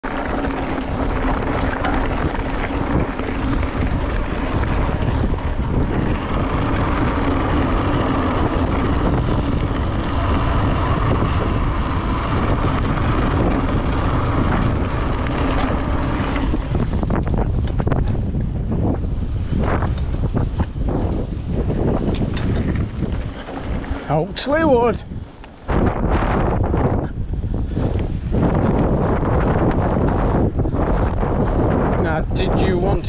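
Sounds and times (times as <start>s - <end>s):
steady hum: 0.0s - 32.0s
bike rattling and knocking: 0.0s - 33.0s
bike tyre rumble on gravel: 0.0s - 33.0s
wind on microphone: 0.0s - 33.0s.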